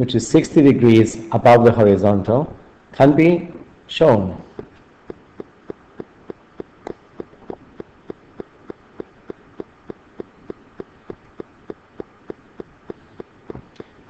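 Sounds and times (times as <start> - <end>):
steady ticking: 4.6 - 14.0.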